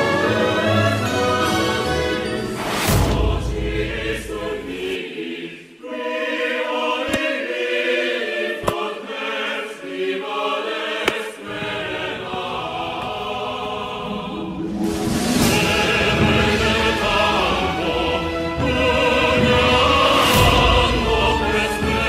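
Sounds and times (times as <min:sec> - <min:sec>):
choral singing: 0:00.0 - 0:22.0.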